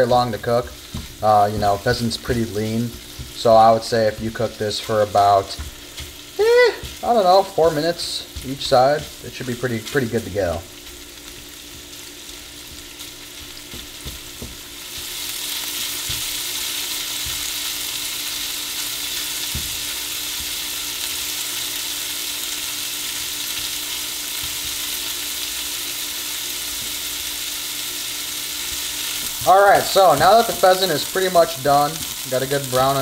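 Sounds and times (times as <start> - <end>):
meat sizzling in butter: 0.0 - 33.0.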